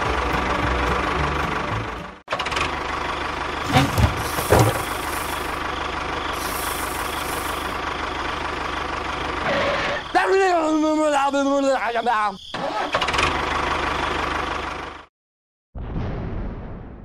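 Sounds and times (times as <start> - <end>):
tractor engine idling: 0.4 - 11.2
knocks: 3.7 - 5.1
bursts of hiss: 3.7 - 5.6, 6.4 - 7.8.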